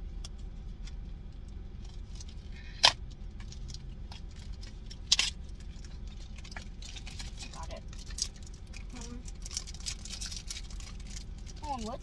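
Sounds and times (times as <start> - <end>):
low hum inside car: 0.0 - 12.0
plastic packaging crinkling: 3.5 - 12.0
foil wrapper ripping: 4.4 - 12.0.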